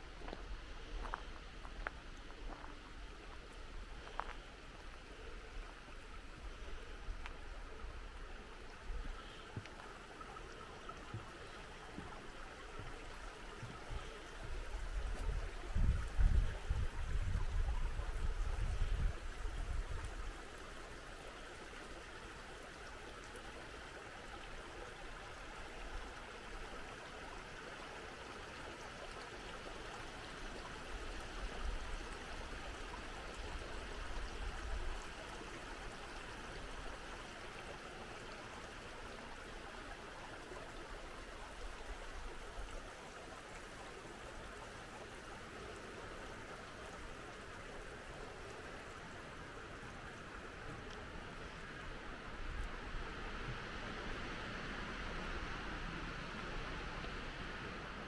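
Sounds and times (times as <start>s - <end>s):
creek running: 0.0s - 58.0s
wind buffeting microphone: 14.4s - 20.2s.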